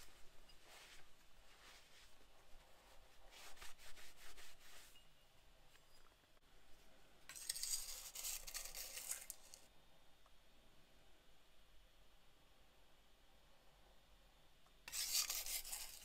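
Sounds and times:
palette knife scraping glass: 7.3s - 9.6s, 14.9s - 16.0s
cloth rubbing steel blade: 14.9s - 16.0s.

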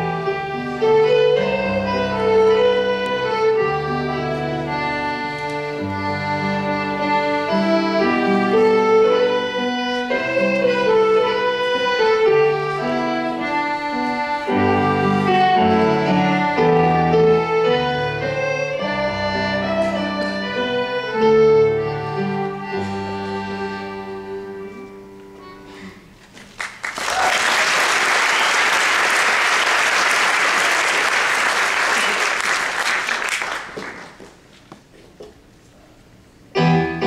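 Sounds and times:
folk band with fiddles and accordion: 0.0s - 25.8s
audience applause: 26.5s - 34.3s.

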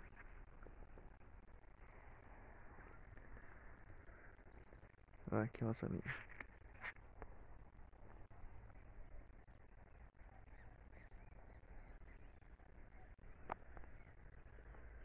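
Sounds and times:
distant bird calls: 6.4s - 15.0s.

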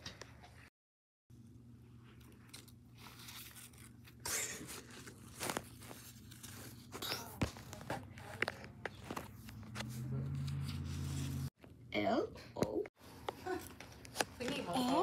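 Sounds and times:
paper rustling and scraping: 2.9s - 11.6s.

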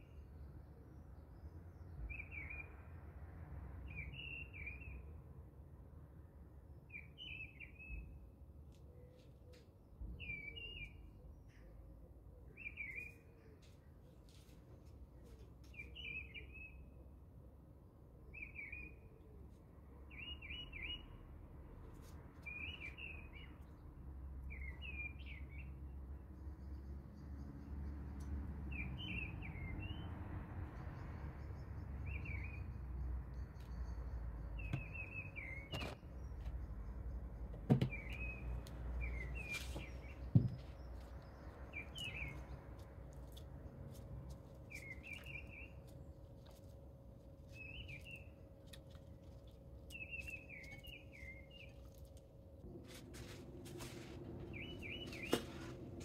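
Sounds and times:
small birds chirping: 31.4s - 52.3s, 54.4s - 56.0s.

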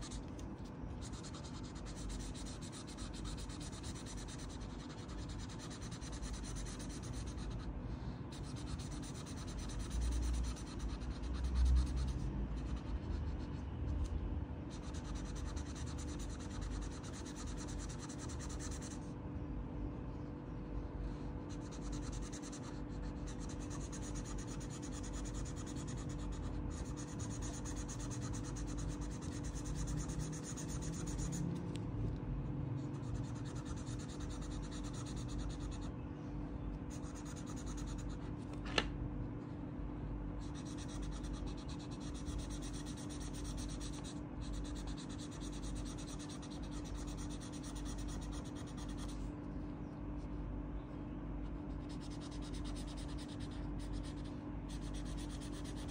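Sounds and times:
marker scribbling on paper: 1.0s - 7.7s, 8.3s - 13.6s, 14.7s - 19.0s, 21.5s - 31.4s, 33.0s - 35.9s, 36.9s - 38.1s, 40.4s - 49.2s, 51.7s - 55.9s.

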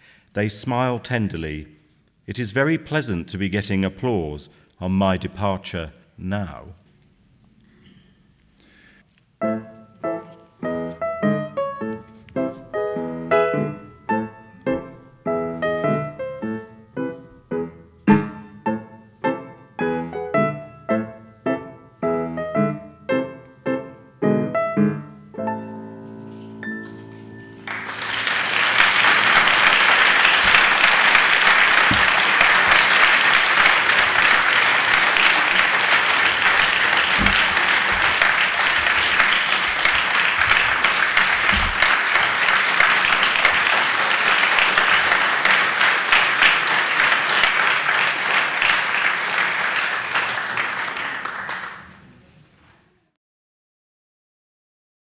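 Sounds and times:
piano chords: 9.4s - 48.8s
audience applause: 27.6s - 52.0s.

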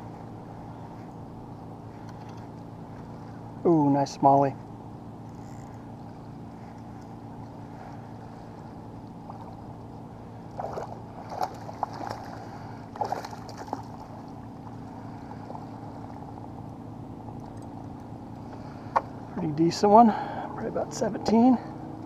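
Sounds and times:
steady low hum: 0.0s - 22.0s
fish splashing in water: 10.5s - 16.3s.

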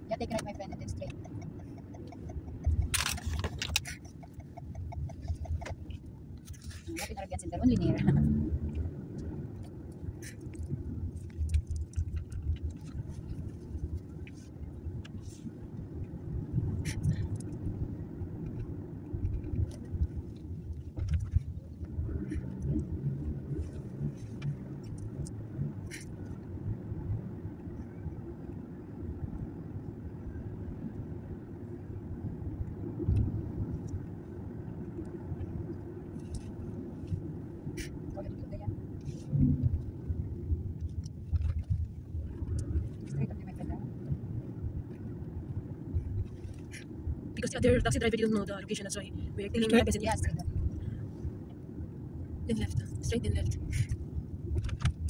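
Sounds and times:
car interior rumble: 0.0s - 55.0s
light clicks and rattles: 0.1s - 17.7s, 18.4s - 22.9s.

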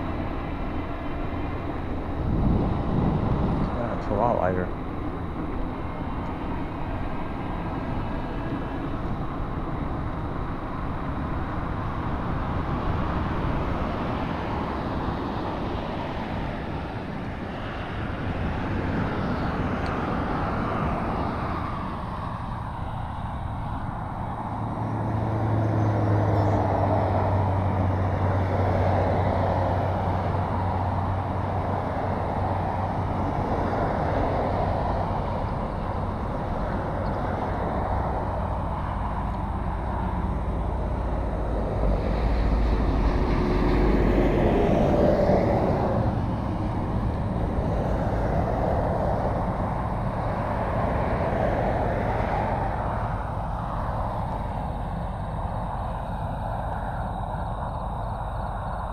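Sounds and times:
highway traffic passing: 0.0s - 58.9s
low steady hum: 0.0s - 58.9s.

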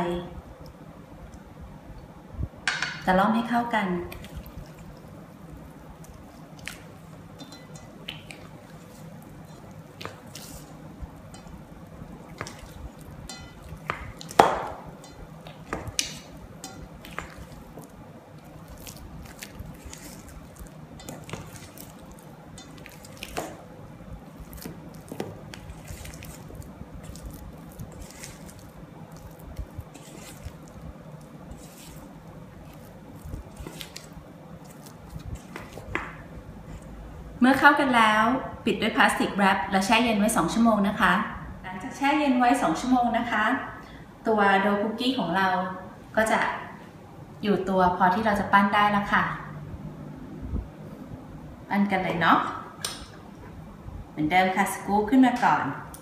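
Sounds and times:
spatula squelching and scraping dough: 3.8s - 37.0s
spatula clinking against metal bowl: 7.4s - 8.4s, 11.3s - 11.6s, 12.3s - 17.9s, 19.3s - 23.6s.

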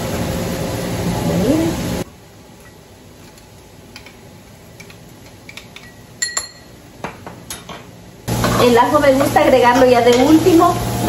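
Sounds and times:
sharp ringing clink: 5.9s - 6.7s.

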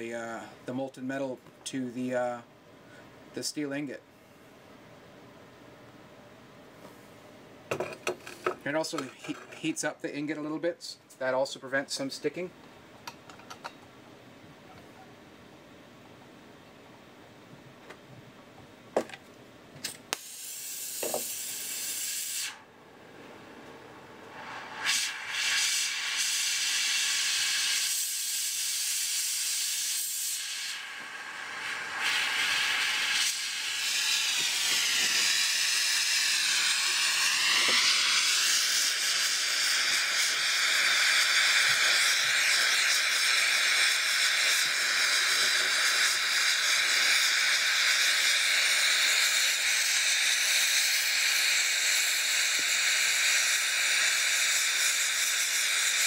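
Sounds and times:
gas torch hissing: 19.8s - 22.7s, 24.2s - 56.0s.

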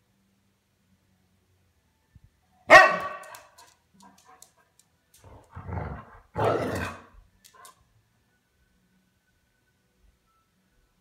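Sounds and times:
dog barking: 2.7s - 3.5s, 6.4s - 7.1s.

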